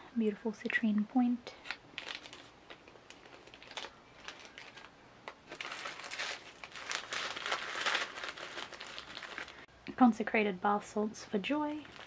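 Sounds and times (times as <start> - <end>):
plastic bags crinkling: 1.5 - 9.7, 11.7 - 12.0.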